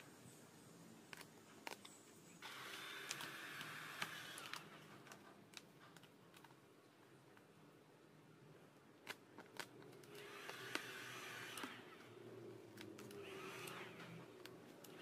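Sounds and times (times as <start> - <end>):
sticker film crinkling: 1.0 - 7.5, 9.0 - 15.0
heat gun blowing: 2.4 - 4.6.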